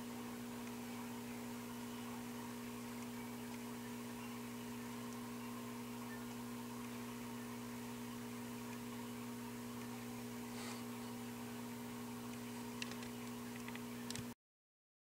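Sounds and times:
low background hiss: 0:00.0 - 0:14.2
electrical mains hum: 0:00.0 - 0:14.4
faint clicks: 0:12.3 - 0:14.4.

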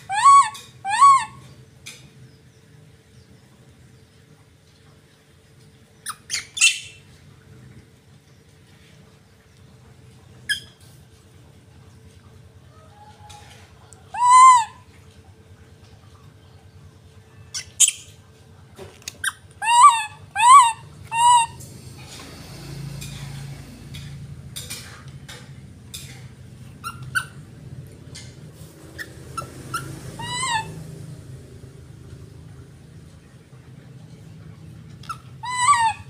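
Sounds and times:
young monkey high cries: 0:00.0 - 0:01.5, 0:14.1 - 0:14.9, 0:19.2 - 0:21.6, 0:29.0 - 0:30.8, 0:35.0 - 0:36.0.

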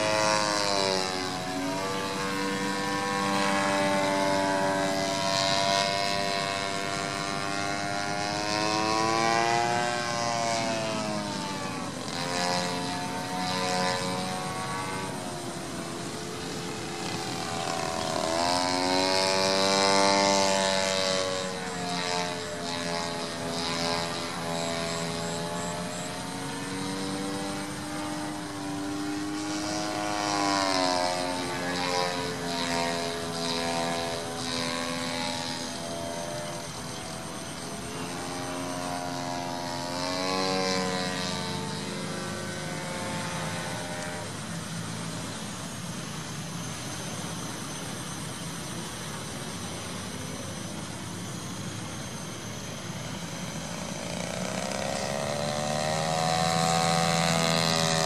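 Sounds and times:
model plane engine and propeller: 0:00.0 - 0:58.0.

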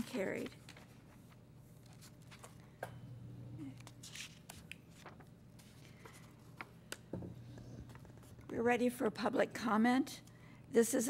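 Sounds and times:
paper shuffling: 0:00.0 - 0:02.7, 0:03.8 - 0:07.0
low steady hum: 0:00.0 - 0:11.0.

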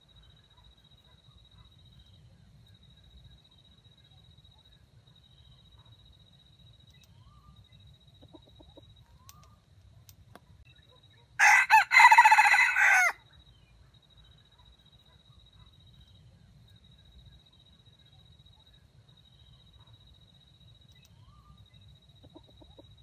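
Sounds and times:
rooster crowing: 0:11.4 - 0:13.2.

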